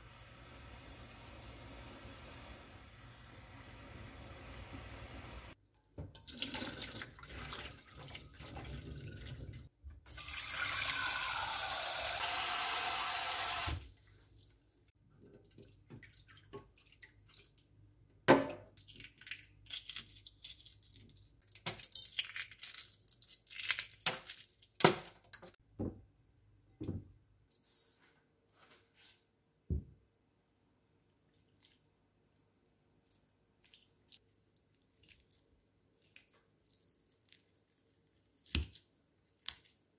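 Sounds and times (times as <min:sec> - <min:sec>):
tap water running: 0:00.2 - 0:13.9
water sloshing in a pot: 0:05.8 - 0:10.8, 0:13.9 - 0:17.8.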